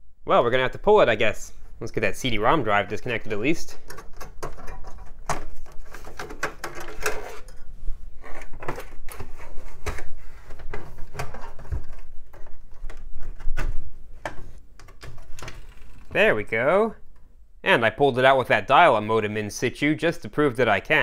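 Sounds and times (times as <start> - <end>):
clicks and scrapes of plastic and metal: 3.8 - 16.2.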